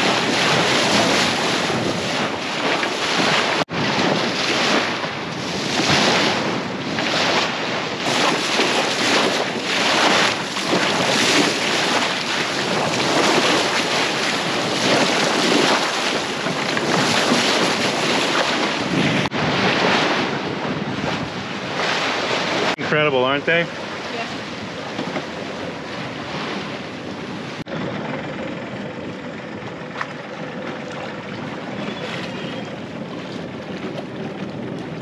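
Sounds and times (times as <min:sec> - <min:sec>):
water rushing along boat hull: 0:00.0 - 0:35.0
wind buffeting microphone: 0:00.0 - 0:35.0.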